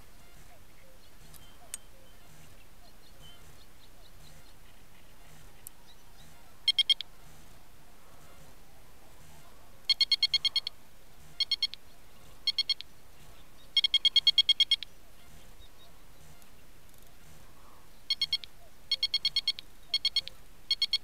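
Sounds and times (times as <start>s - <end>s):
electronic bite alarm beeping: 6.7s - 7.1s, 9.9s - 10.7s, 11.3s - 11.8s, 12.4s - 12.9s, 13.8s - 15.4s, 18.1s - 21.0s.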